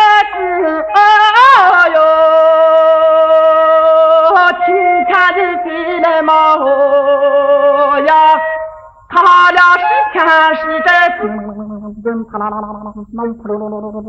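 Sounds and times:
wordless voice-like melody: 0:00.0 - 0:14.0.

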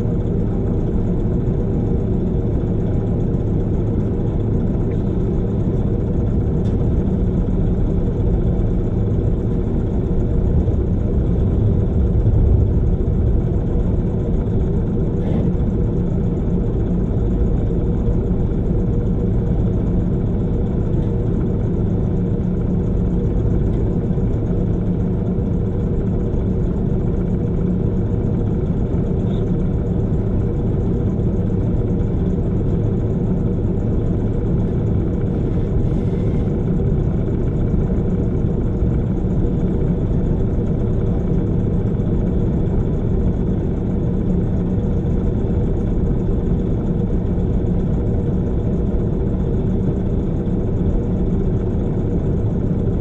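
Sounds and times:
diesel truck engine idling: 0:04.4 - 0:24.5.

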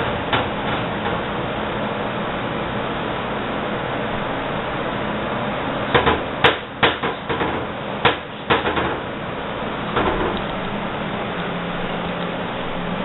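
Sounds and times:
sharp knocks: 0:05.9 - 0:09.0, 0:10.0 - 0:10.4.

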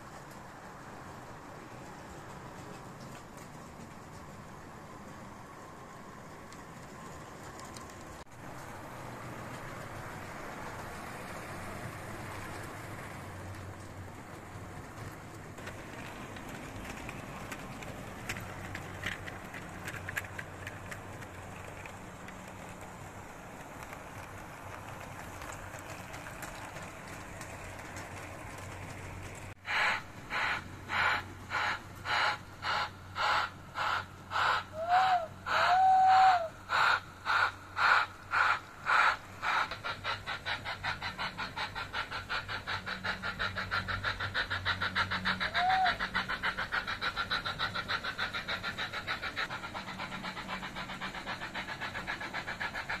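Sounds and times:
model steam locomotive chuffing: 0:00.0 - 0:53.0
model trains running: 0:00.0 - 0:53.0
train whistle blasts: 0:29.7 - 0:36.5, 0:45.5 - 0:46.0.

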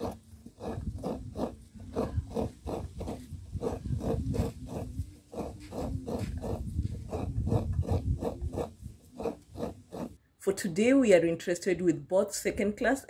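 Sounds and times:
grated coconut squeezed by hand: 0:00.0 - 0:10.2.

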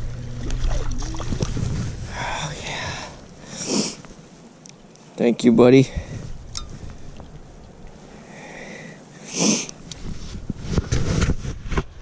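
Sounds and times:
person sniffing: 0:03.5 - 0:04.0, 0:09.2 - 0:09.7.

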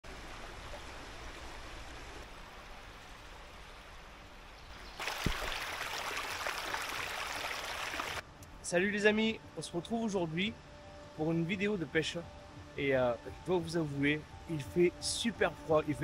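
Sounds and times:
river running over rocks: 0:00.1 - 0:08.2
brief low thump: 0:05.2 - 0:05.5.

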